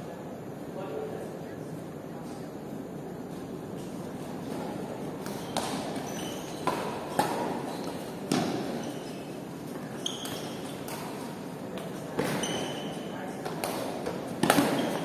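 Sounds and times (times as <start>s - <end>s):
steady background hum: 0.0s - 15.0s
shoes squeaking on court floor: 3.2s - 15.0s
rackets striking shuttlecock: 5.2s - 9.0s, 13.4s - 15.0s.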